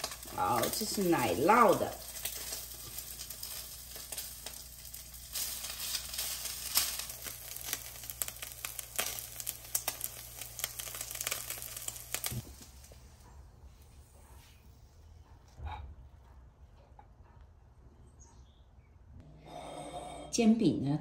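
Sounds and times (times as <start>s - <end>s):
pancake sizzling in a wok: 0.0s - 13.0s.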